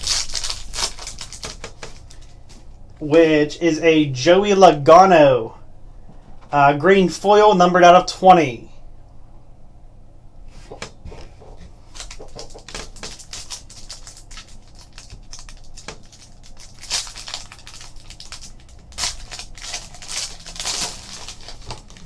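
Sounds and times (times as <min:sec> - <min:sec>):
foil wrapper ripping: 0:00.0 - 0:02.4, 0:11.9 - 0:22.0
foil wrapper crinkling: 0:00.0 - 0:02.5, 0:11.9 - 0:22.0.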